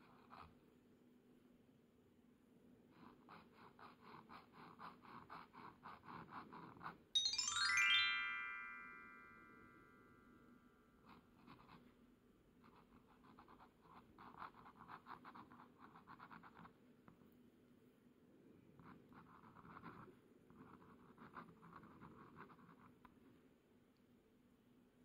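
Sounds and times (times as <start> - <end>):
pen nib scratching on paper: 0.0 - 0.6, 2.9 - 7.0, 11.1 - 12.0, 12.6 - 16.8, 18.8 - 23.1.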